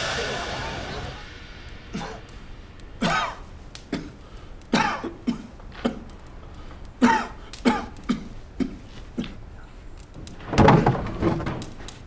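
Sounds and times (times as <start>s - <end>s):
person coughing: 2.0s - 2.2s, 4.8s - 6.0s.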